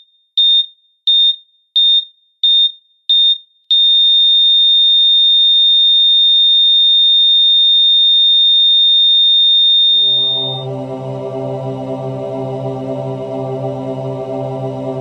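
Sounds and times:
heart monitor flatline tone: 9.9s - 11.7s.

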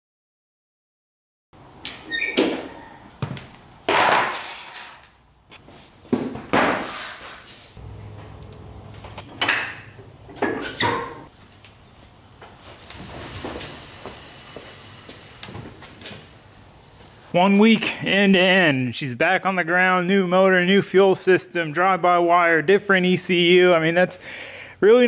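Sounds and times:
metal clunks and knocks: 9.2s - 11.3s.

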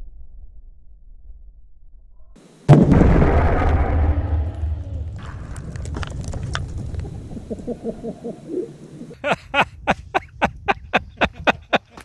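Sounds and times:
falling debris clicks: 2.7s - 7.3s
explosion rumble: 2.7s - 8.0s
man laughing: 7.5s - 8.4s, 9.1s - 12.0s.

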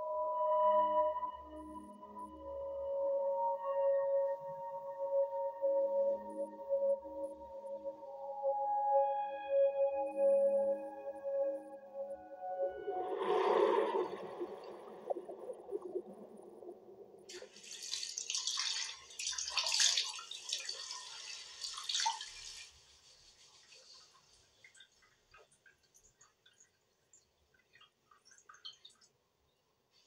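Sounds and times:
water dripping: 12.0s - 29.7s
water running into bathtub: 17.3s - 29.1s.

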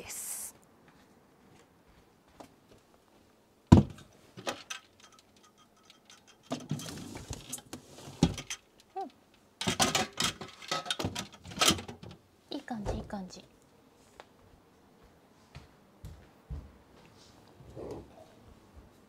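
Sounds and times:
scuffing on floor: 0.8s - 3.3s, 14.0s - 17.4s
container clattering: 9.6s - 12.0s.

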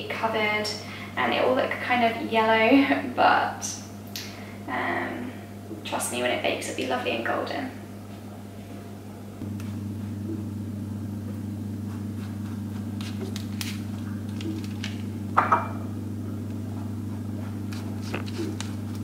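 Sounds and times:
steady low hum: 0.0s - 19.0s
pastry brush dabbing dough: 11.3s - 14.5s, 16.2s - 19.0s.

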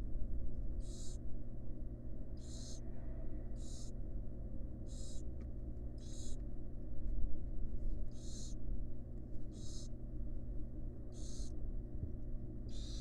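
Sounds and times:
steady low hum: 0.0s - 13.0s
owl hissing: 0.8s - 1.2s, 2.4s - 2.8s, 3.6s - 3.9s, 4.9s - 5.2s, 6.0s - 6.4s, 8.1s - 8.6s, 9.5s - 9.9s, 11.1s - 11.5s, 12.7s - 13.0s.

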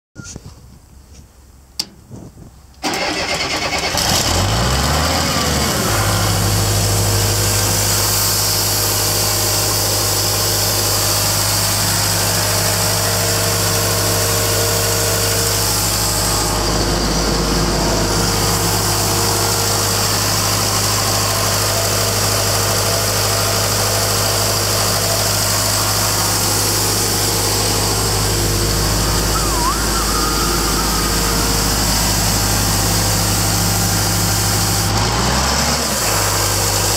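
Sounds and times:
diesel engine starting and idling: 1.5s - 36.9s.

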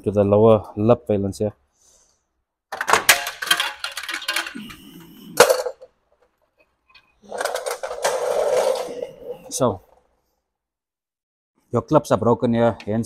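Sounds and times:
plastic grille scraping: 7.2s - 9.6s.

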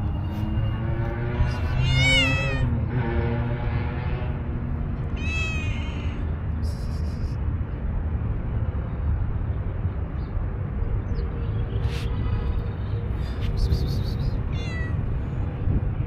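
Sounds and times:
cat meowing: 1.3s - 2.7s, 5.2s - 6.3s, 14.5s - 15.0s.

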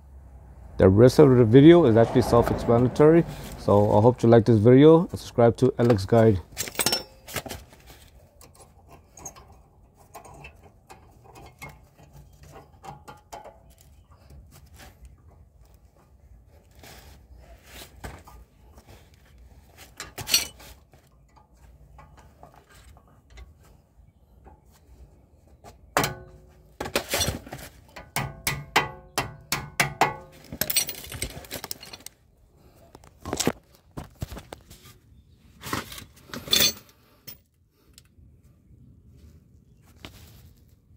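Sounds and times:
metal tools clinking: 6.5s - 7.4s, 8.4s - 13.9s, 20.0s - 23.6s, 30.2s - 32.1s, 36.3s - 37.4s.

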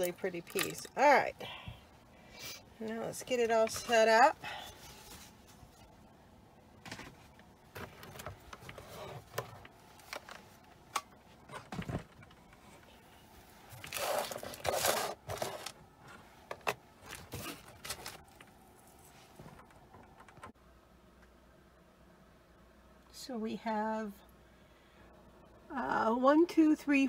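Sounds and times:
plastic bag crinkling: 13.7s - 15.8s.

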